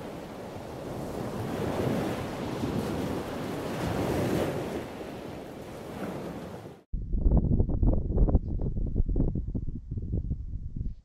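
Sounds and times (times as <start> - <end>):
waves washing in: 0.0 - 6.9.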